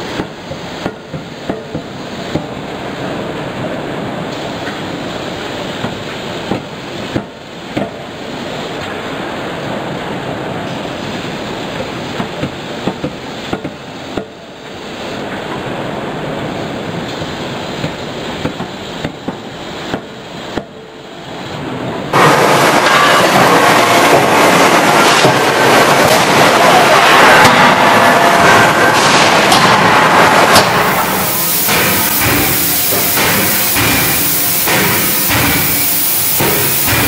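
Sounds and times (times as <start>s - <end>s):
loud factory din: 0.0s - 37.0s
forging hammer blows: 22.1s - 37.0s.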